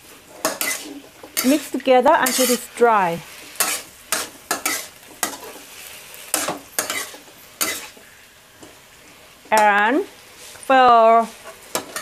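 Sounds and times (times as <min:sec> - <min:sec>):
metal spatula scraping a wok: 0:00.0 - 0:08.2, 0:09.6 - 0:12.0
faint sizzle: 0:00.0 - 0:12.0.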